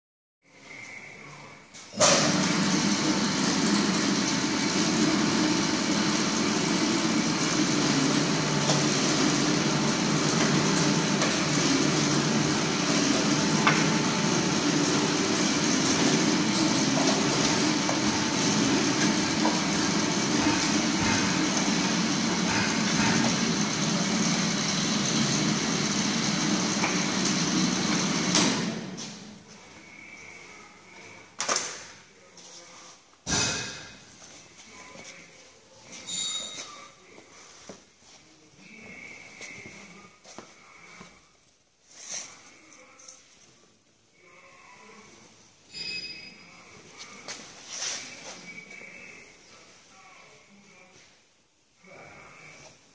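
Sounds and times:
machine motor whining: 2.0 - 29.0.

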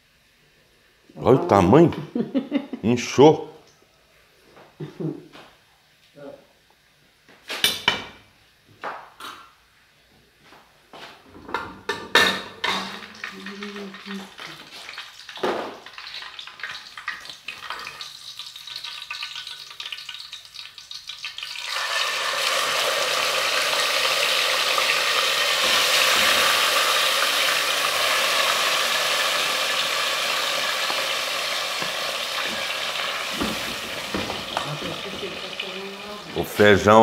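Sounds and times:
beans sizzling in hot oil: 12.6 - 36.8.

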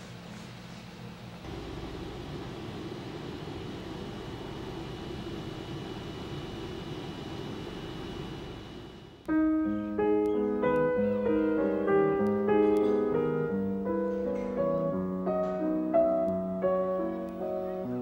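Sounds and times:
slow piano melody: 9.3 - 18.0.

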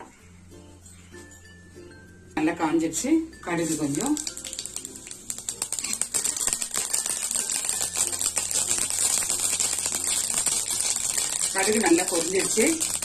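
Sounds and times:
oil sizzling: 3.4 - 13.0
seeds popping in hot oil: 3.4 - 13.0.

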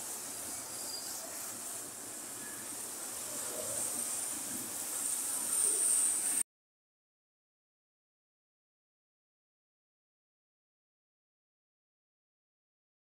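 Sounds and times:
high hiss: 0.0 - 6.4.

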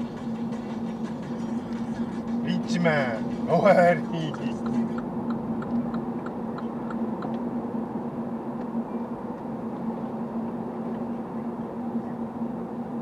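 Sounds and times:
car road and engine noise: 0.0 - 13.0.

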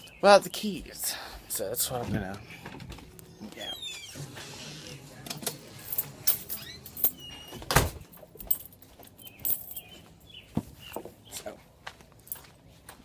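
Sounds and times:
keys jingling: 5.8 - 10.1.

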